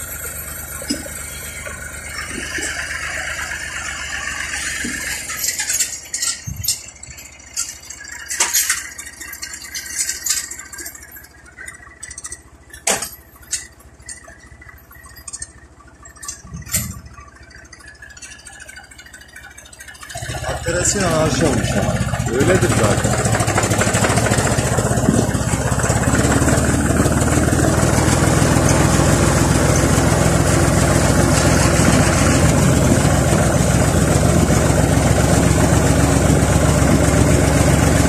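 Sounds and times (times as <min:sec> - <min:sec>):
tractor engine running: 0:00.0 - 0:38.0.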